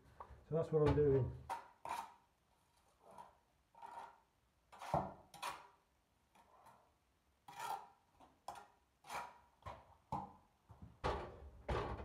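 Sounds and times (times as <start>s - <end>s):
trowel scraping mortar: 1.4s - 9.7s.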